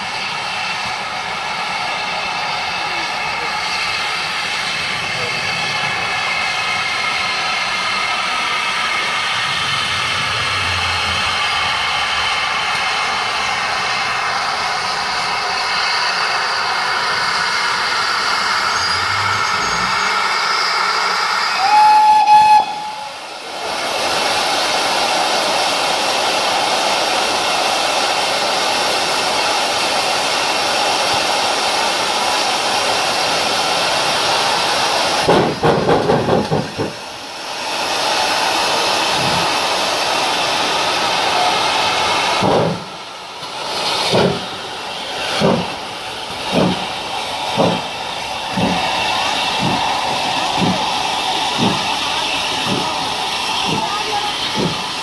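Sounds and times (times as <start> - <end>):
steam hissing: 0.0 - 55.0
steam whistle toot: 18.7 - 20.7, 21.3 - 23.2
locomotive exhaust beats: 44.0 - 55.0.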